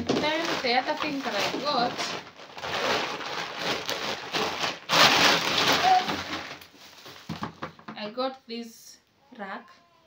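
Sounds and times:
plastic packaging crinkling: 0.0s - 7.8s.

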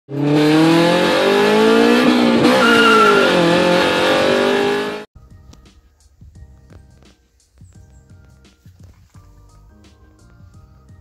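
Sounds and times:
car engine revving: 0.1s - 5.1s
tyre squeal: 2.4s - 3.8s
faint music: 5.2s - 11.0s.

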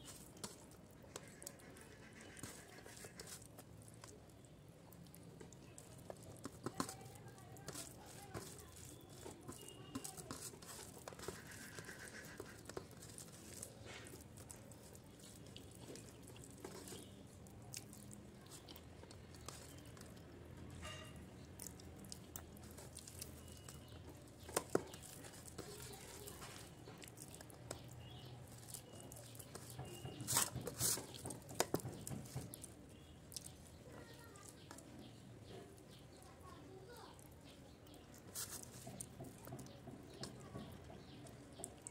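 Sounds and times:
fingers kneading wet rice: 0.0s - 41.9s
person chewing: 7.8s - 20.4s, 21.1s - 30.1s.

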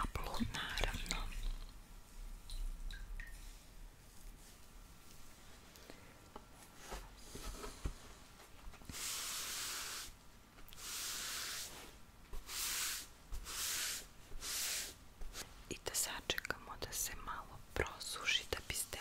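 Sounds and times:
person whispering: 0.0s - 1.7s, 15.7s - 19.0s.

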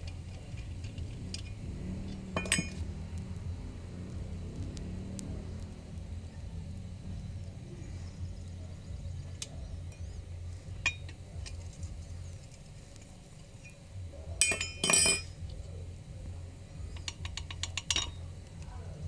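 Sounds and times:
metal engine parts clinking: 0.0s - 2.9s, 10.7s - 15.6s, 17.0s - 18.3s.

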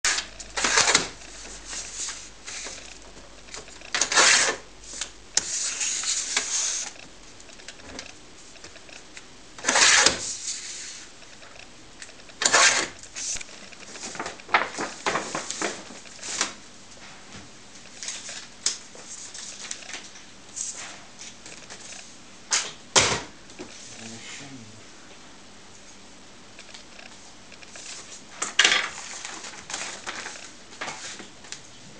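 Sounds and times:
paper rustling: 0.1s - 7.0s, 12.4s - 17.2s, 17.8s - 22.0s, 27.7s - 31.4s
paper bag rustling: 12.4s - 16.6s, 28.8s - 31.3s.

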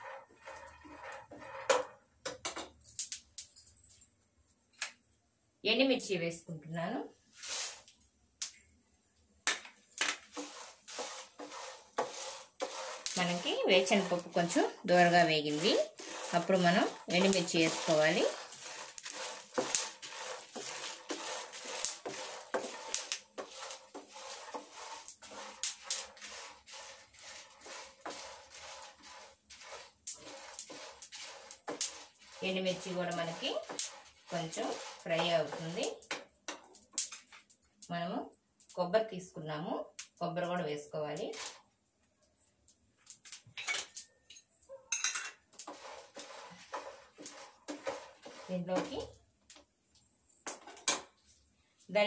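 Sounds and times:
spatula scraping a pan: 0.0s - 2.1s, 7.3s - 7.9s, 10.0s - 37.4s, 41.3s - 41.7s, 44.9s - 49.2s.

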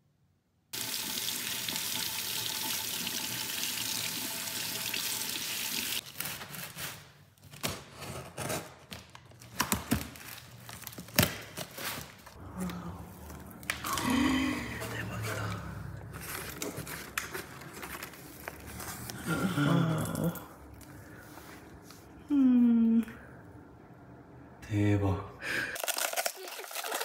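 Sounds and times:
water running from a tap: 0.8s - 6.0s.

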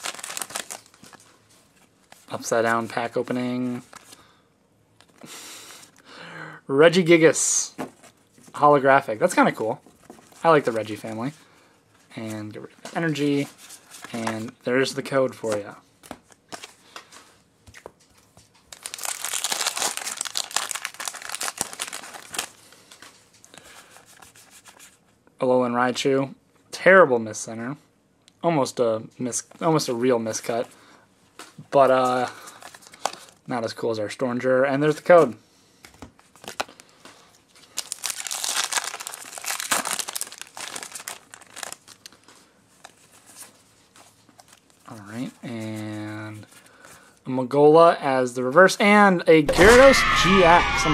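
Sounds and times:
foil wrapper crinkling and tearing: 0.0s - 1.4s, 18.7s - 23.0s, 36.3s - 43.6s.

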